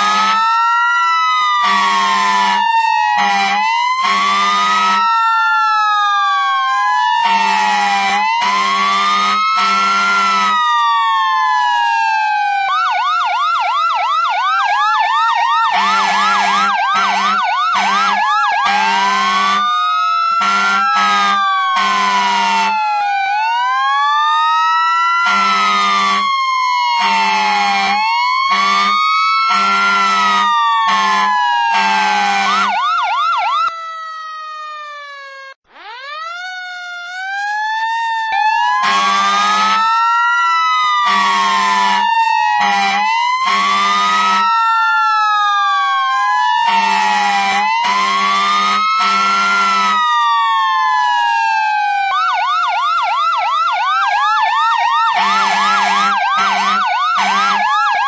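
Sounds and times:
fire truck siren wailing: 0.0 - 58.0
low horn blasts: 1.6 - 2.6, 3.2 - 5.0, 8.4 - 10.6, 18.6 - 19.6, 20.4 - 22.8, 25.2 - 26.3, 27.0 - 32.7, 38.8 - 39.8, 41.0 - 42.0, 42.6 - 44.4, 46.7 - 50.0, 55.2 - 57.4.

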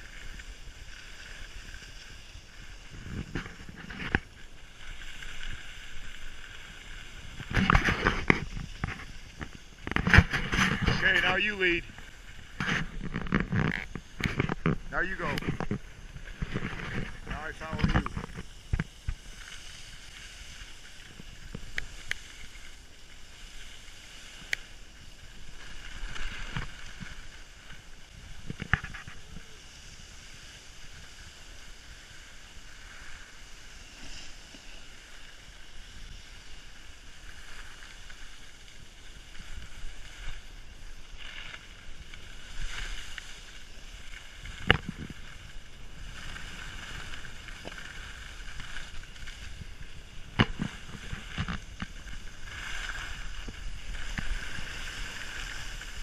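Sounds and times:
skis scraping over snow: 0.0 - 56.0
wind on microphone: 1.5 - 22.5, 39.2 - 56.0.

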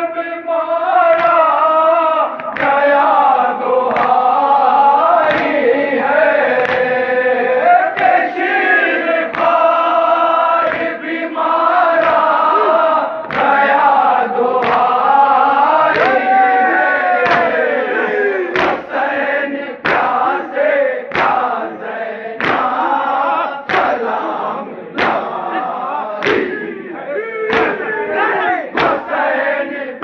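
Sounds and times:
men chanting a lament: 0.0 - 30.0
chest beating slaps: 2.3 - 3.0, 3.9 - 4.3, 5.2 - 5.6, 6.5 - 7.0, 7.9 - 8.4, 9.2 - 9.8, 10.6 - 11.0, 11.9 - 15.1, 15.8 - 16.4, 17.2 - 19.1, 19.8 - 20.4, 21.0 - 21.8, 22.4 - 29.6.

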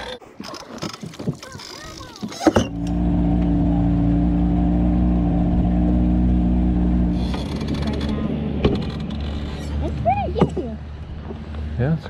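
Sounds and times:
outboard motor running: 0.0 - 12.0.

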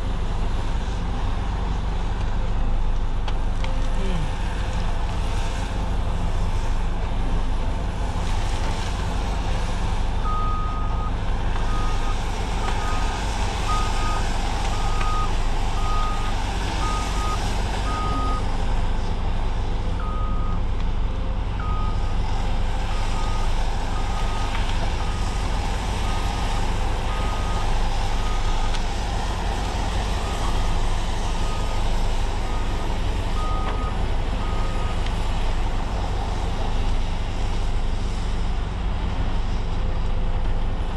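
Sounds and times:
heavy diesel machine running: 0.0 - 40.9
warning alarm beeping: 14.8 - 18.5.

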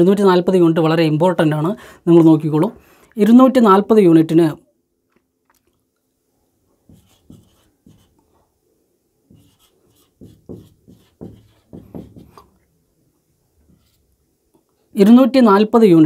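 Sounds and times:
marker squeaking on whiteboard: 6.9 - 8.2, 9.3 - 12.5.

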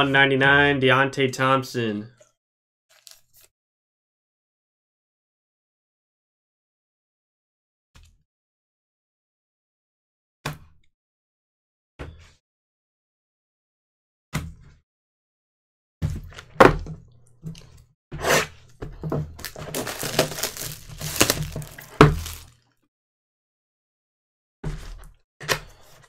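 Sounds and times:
cardboard rustling and scraping: 19.2 - 22.5
cardboard box knocking on table: 21.1 - 22.4.

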